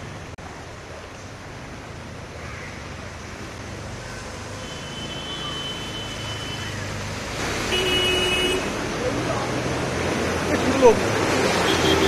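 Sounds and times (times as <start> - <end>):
vehicles moving through floodwater: 0.0 - 12.0
wash of water: 6.8 - 12.0.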